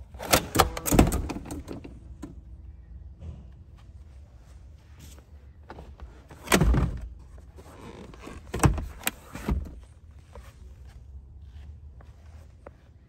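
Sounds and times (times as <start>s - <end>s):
seat mechanism clicks: 0.2s - 2.4s.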